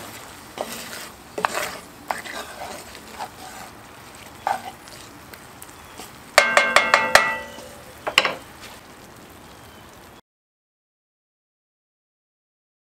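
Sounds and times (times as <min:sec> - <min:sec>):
faint sizzle of food cooking: 0:00.0 - 0:10.2
wooden spoon knocking on pot rim: 0:06.4 - 0:08.4.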